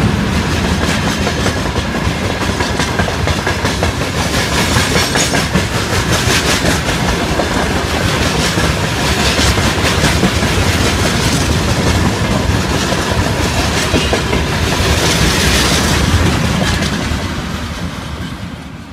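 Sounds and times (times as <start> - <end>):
wheels clattering over rail joints: 0.0 - 18.5
train wheels on rails: 0.0 - 18.9.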